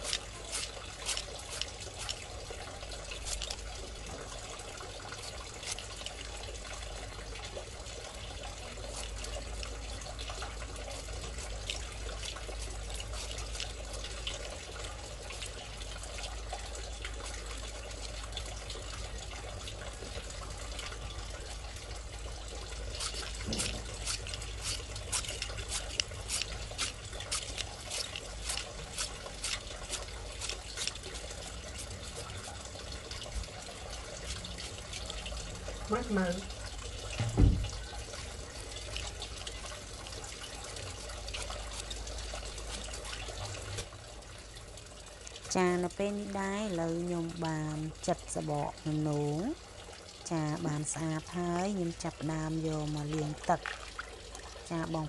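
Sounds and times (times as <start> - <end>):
knife scraping gourd: 0.0 - 2.3, 2.9 - 3.7, 5.2 - 5.9, 10.8 - 14.1, 22.8 - 32.7, 41.4 - 43.2.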